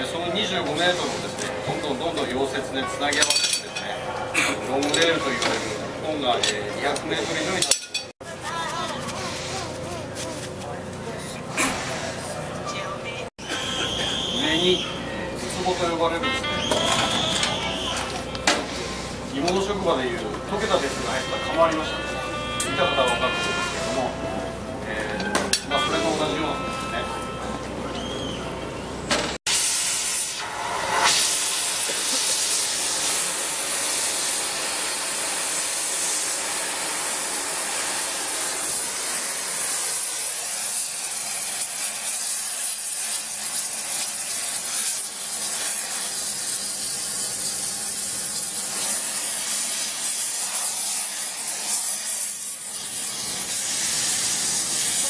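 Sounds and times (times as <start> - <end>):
gas torch hissing: 0.4 - 2.7, 29.5 - 55.0.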